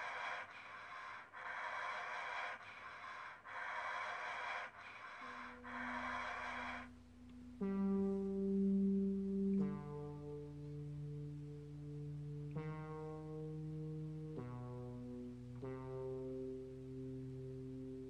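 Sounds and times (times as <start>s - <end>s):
heavy breathing gasps: 0.0s - 7.0s
low held musical notes: 5.2s - 18.0s.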